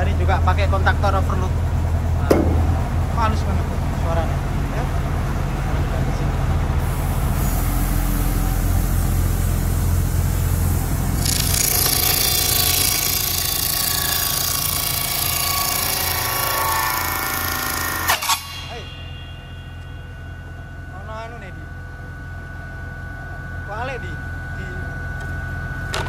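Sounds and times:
sharp knocks: 2.2s - 3.0s
table saw cutting plywood: 11.1s - 18.6s.

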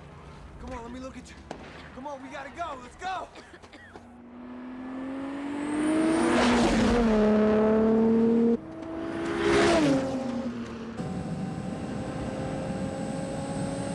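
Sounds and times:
sports car speeding past: 4.2s - 13.9s
low engine drone: 10.2s - 13.9s.

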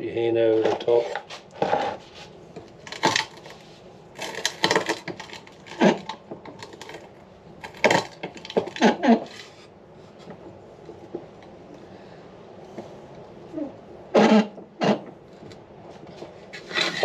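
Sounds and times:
rock crusher cracking rocks: 2.8s - 9.4s.

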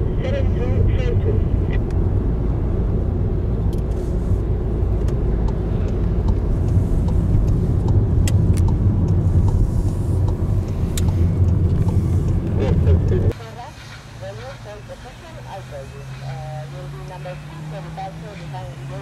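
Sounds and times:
car engine and road rumble: 0.0s - 19.0s.

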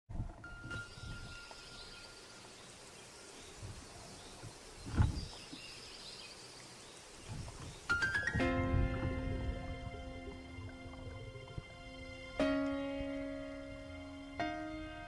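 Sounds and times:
dull low thump: 8.4s - 11.6s.

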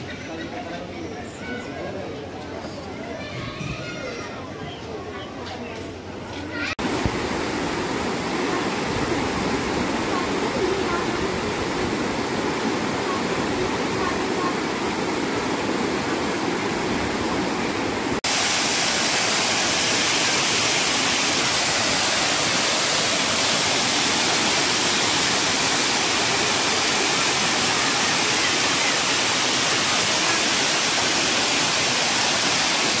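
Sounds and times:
water rushing over rocks: 6.8s - 33.0s
waterfall splashing into a pool: 6.8s - 33.0s.

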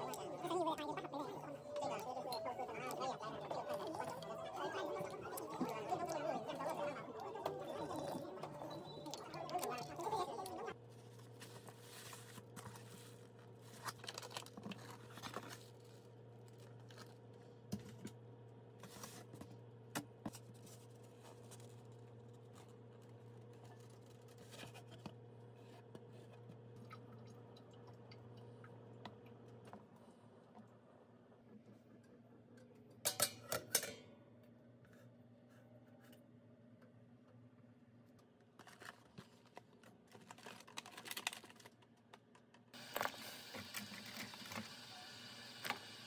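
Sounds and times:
plastic bag and foam box rustling: 10.9s - 17.2s, 38.6s - 41.8s.

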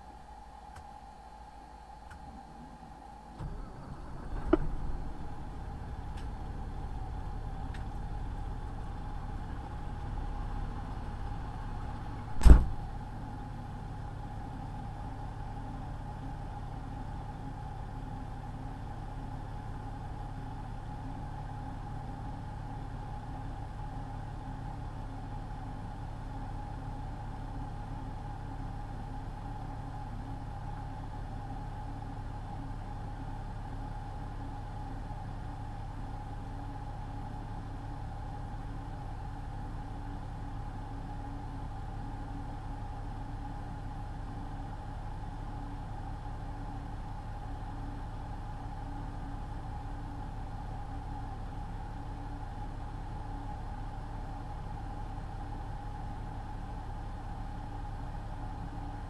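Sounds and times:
diesel engine idling: 3.4s - 24.6s
loud sharp knock: 12.4s - 12.8s.

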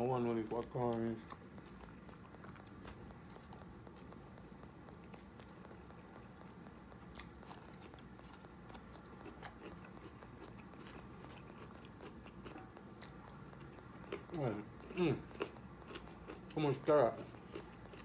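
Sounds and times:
person chewing: 0.0s - 18.0s.

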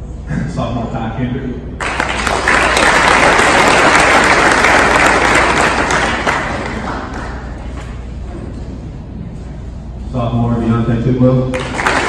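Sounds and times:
audience applauding: 1.8s - 7.8s, 11.6s - 12.0s.

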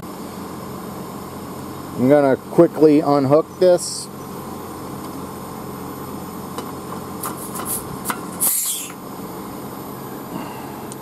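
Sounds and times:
air conditioner humming: 0.0s - 11.0s
refrigerant hissing: 7.1s - 11.0s.

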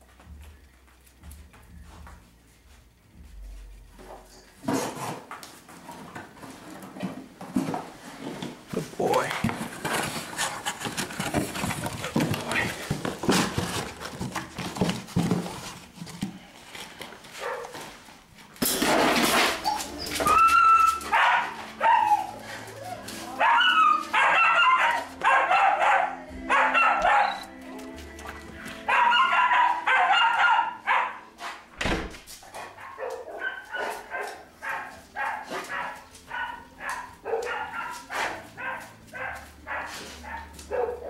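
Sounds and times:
dog barking and whining: 19.6s - 27.6s, 28.2s - 31.3s, 32.4s - 41.0s.

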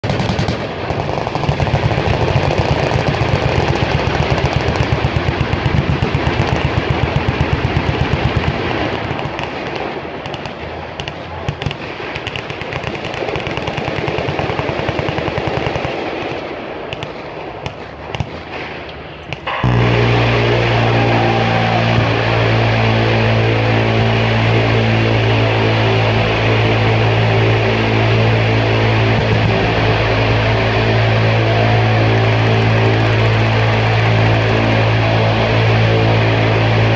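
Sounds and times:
automatic gunfire rattling: 0.0s - 16.0s
minigun buzzing burst: 19.2s - 36.9s.

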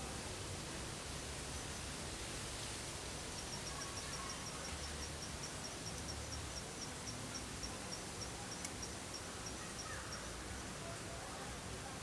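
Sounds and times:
steady background hiss: 0.0s - 12.0s
cricket chirping: 3.4s - 10.4s.

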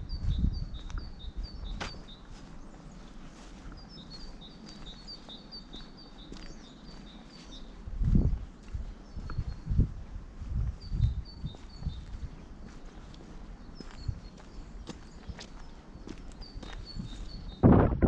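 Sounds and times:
songbird chirping: 0.0s - 17.8s
low thumps: 17.6s - 18.0s.

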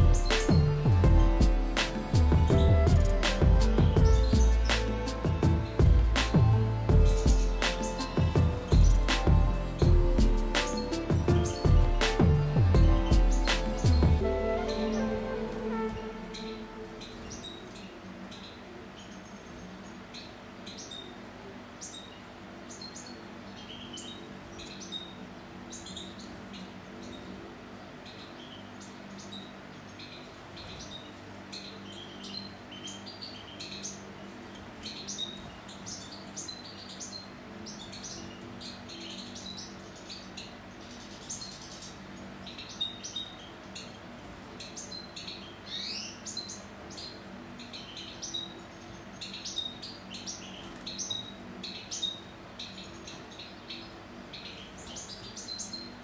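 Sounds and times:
high chirps of birds: 0.0s - 56.0s
rising bird call: 13.8s - 17.6s.

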